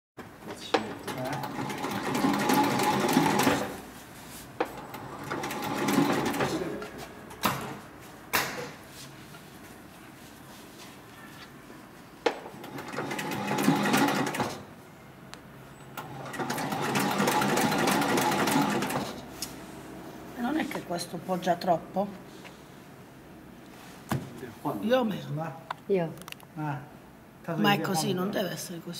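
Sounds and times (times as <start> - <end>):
sewing machine stitching leather: 1.1 - 3.8, 4.8 - 6.7, 12.6 - 14.7, 16.0 - 19.2.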